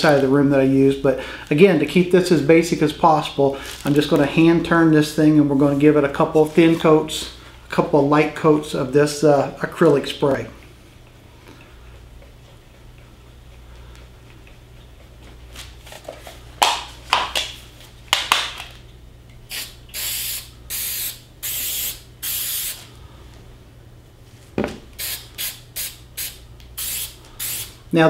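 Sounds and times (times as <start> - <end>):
short hissing sprays: 19.5 - 23.0, 25.0 - 27.8.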